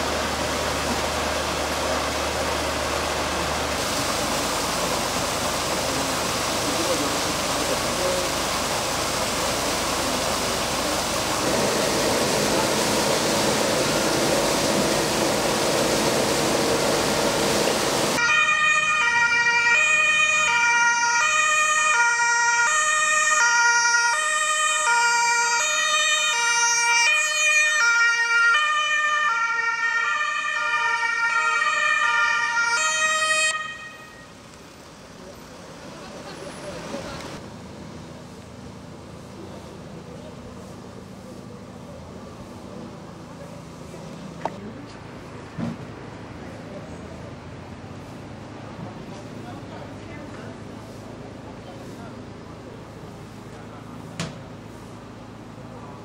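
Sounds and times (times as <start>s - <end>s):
water gushing: 0.0s - 18.2s
two-tone ambulance siren: 18.2s - 34.4s.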